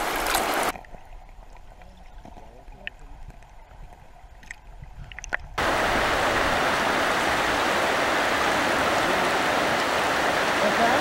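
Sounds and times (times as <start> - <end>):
river rushing: 0.0 - 0.7, 5.6 - 11.0.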